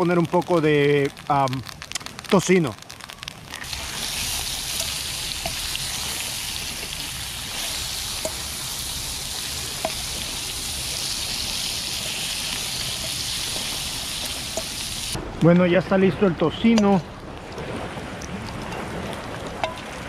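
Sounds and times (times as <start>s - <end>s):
bacon sizzling in a frying pan: 0.0s - 15.2s.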